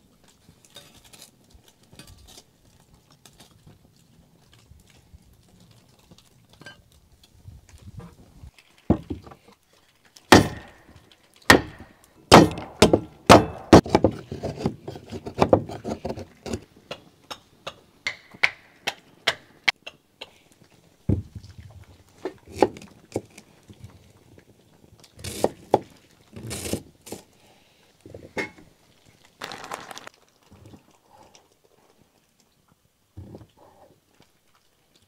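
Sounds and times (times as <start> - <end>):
knife splitting kindling on wood: 10.3 - 10.9, 11.5 - 16.7.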